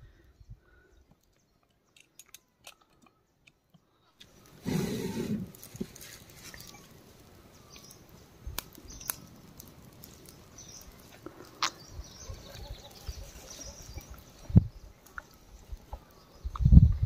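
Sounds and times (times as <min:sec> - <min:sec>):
faint bird chirps: 0:10.3 - 0:16.8.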